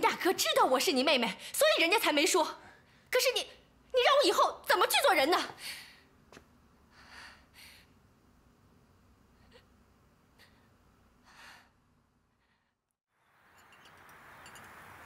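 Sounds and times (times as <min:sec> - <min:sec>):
woman breathing softly: 0:06.9 - 0:08.0, 0:10.3 - 0:12.9.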